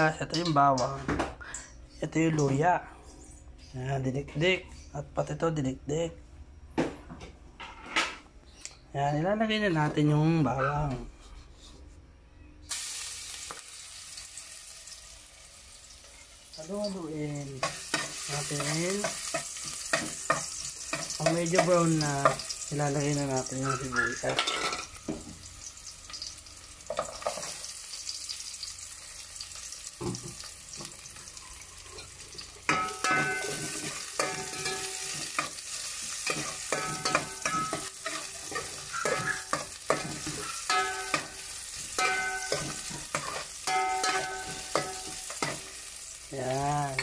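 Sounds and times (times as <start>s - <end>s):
onions frying in oil: 12.7s - 47.0s
metal spoon scraping pot: 36.2s - 41.3s.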